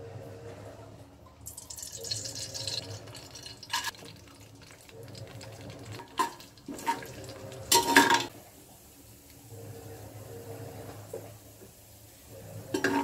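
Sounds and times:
ghee pouring with liquid hiss: 0:01.5 - 0:07.8.

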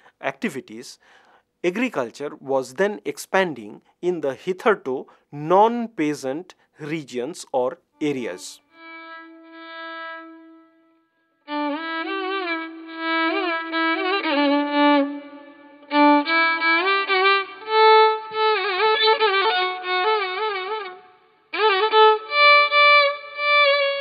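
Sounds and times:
solo violin melody: 0:08.0 - 0:24.0.

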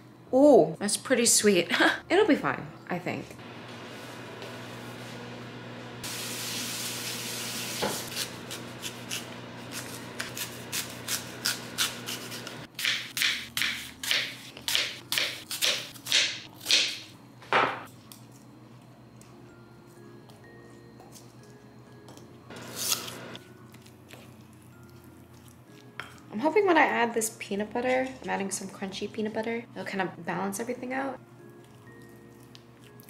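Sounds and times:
knife cutting apple on cutting board: 0:07.8 - 0:17.0, 0:22.6 - 0:23.3.

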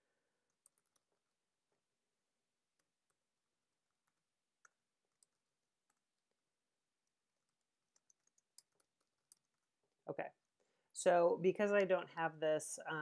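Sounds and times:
faint keyboard typing clicks: 0:00.5 - 0:01.1, 0:07.0 - 0:09.7.

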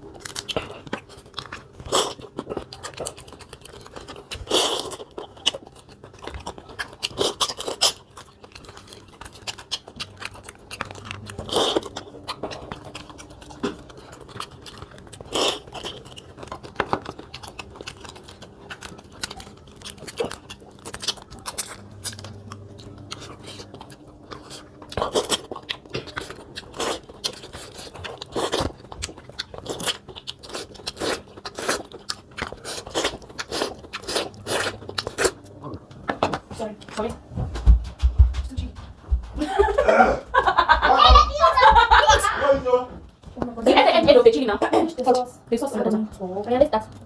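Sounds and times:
chewing and crunching: 0:00.0 - 0:37.3, 0:43.1 - 0:47.0
crab shells cracking: 0:00.1 - 0:36.4.

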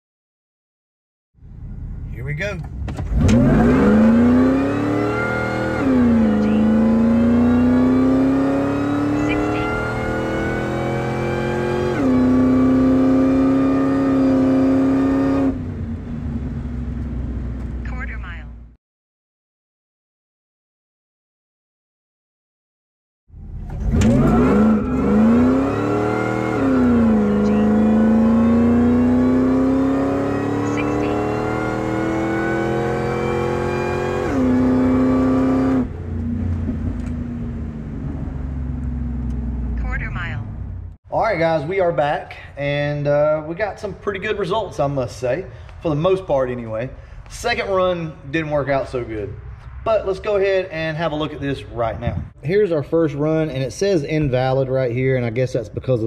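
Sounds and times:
supercharger whine: 0:01.4 - 0:17.9, 0:23.3 - 0:41.0
truck engine launching hard: 0:02.8 - 0:09.0, 0:23.3 - 0:39.8.

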